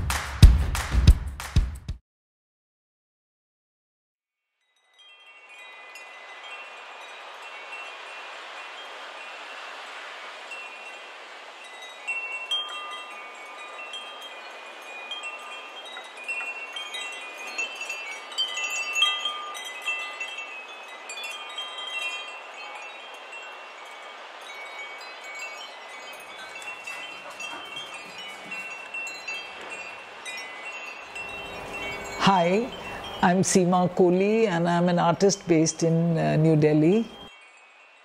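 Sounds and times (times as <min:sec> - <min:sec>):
wind chimes tinkling: 0:04.6 - 0:38.0
steady hiss: 0:05.0 - 0:33.6.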